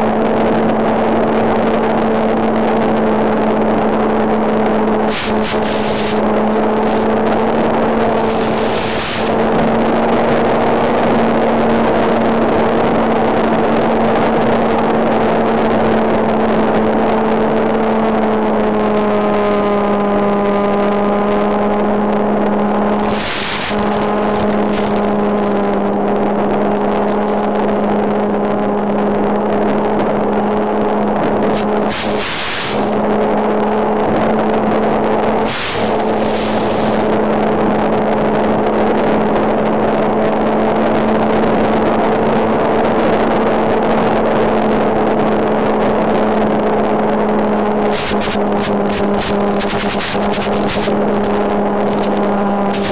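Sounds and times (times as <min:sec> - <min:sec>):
model plane motor and propeller: 0:00.0 - 0:44.5, 0:45.2 - 0:52.9
rushing air: 0:03.7 - 0:09.6, 0:22.6 - 0:27.9, 0:31.2 - 0:33.3, 0:34.2 - 0:39.7, 0:47.5 - 0:52.9
short crackles: 0:03.7 - 0:09.6, 0:22.4 - 0:28.0, 0:31.2 - 0:33.1, 0:34.8 - 0:39.7, 0:47.5 - 0:52.9.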